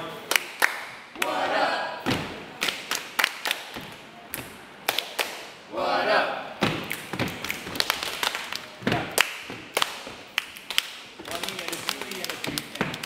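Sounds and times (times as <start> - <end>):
hands slapping thighs and clapping: 6.8 - 13.0.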